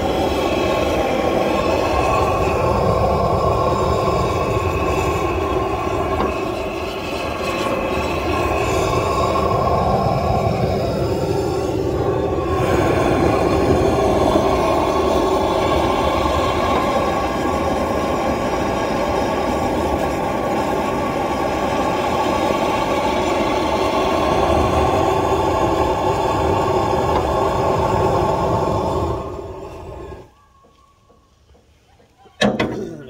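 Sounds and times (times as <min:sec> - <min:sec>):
propane torch flame roaring: 0:00.0 - 0:30.3.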